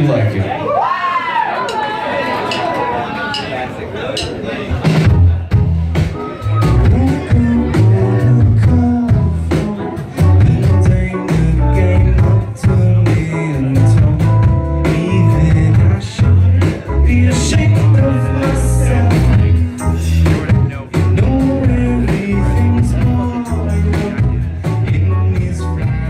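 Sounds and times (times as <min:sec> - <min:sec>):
drums: 0:04.1 - 0:26.0
bass: 0:04.7 - 0:26.0
lead singer singing: 0:06.6 - 0:26.0.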